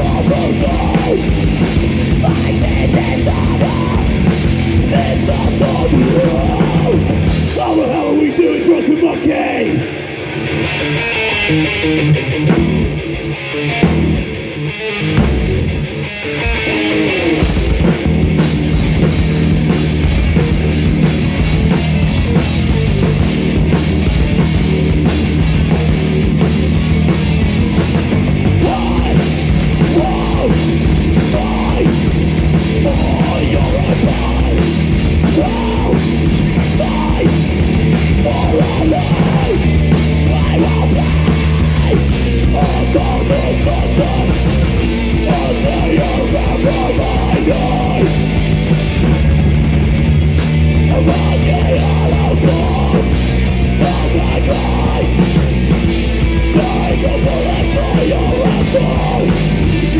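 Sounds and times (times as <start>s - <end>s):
metal band playing live: 0.0s - 59.9s.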